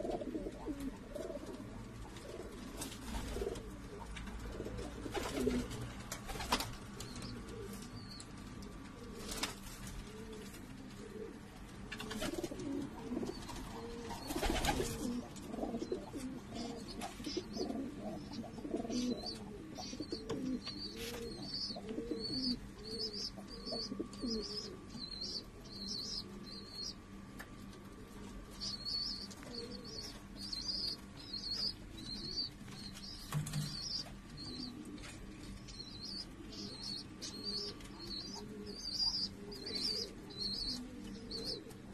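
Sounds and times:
pigeons cooing: 0.0 - 27.3, 27.9 - 41.9
wings flapping: 2.1 - 7.8, 9.0 - 10.7, 11.9 - 15.6.

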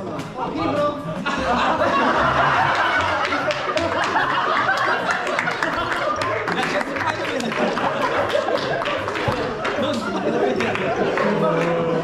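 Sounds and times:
men laughing loudly: 1.2 - 12.0
hand claps: 2.6 - 12.0.

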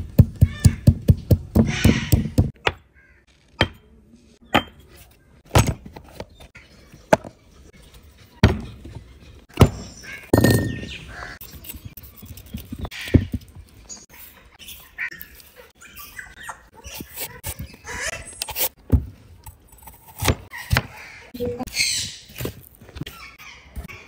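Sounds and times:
stone pestle pounding in mortar: 0.0 - 2.8, 4.5 - 4.8
kitchen tools knocking on wood: 0.2 - 2.8, 9.6 - 11.0.

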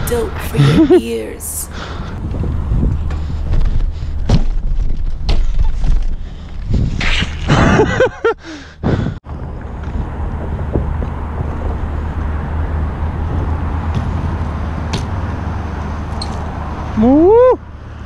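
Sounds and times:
brief voice: 0.0 - 1.7
wind rumble on microphone: 1.8 - 17.5.

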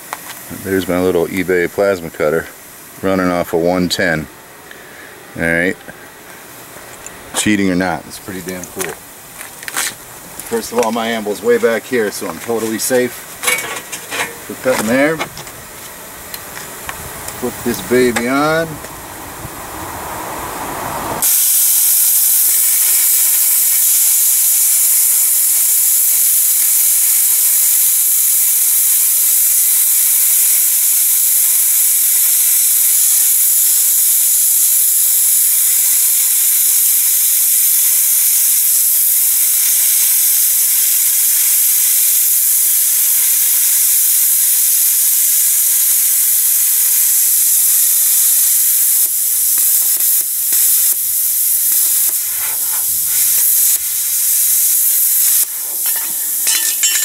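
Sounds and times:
plasma cutter hissing: 10.4 - 15.3, 17.3 - 18.8, 21.1 - 57.0.

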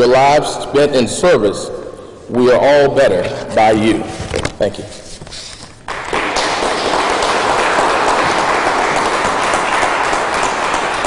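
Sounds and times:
audience applause: 5.9 - 11.0.

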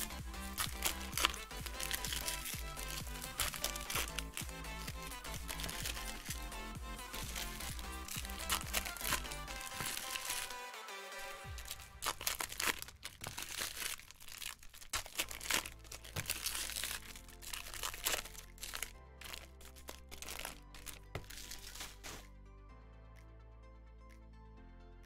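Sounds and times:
background music: 0.0 - 14.4, 15.0 - 25.0
card wrappers crinkling: 0.0 - 22.3.

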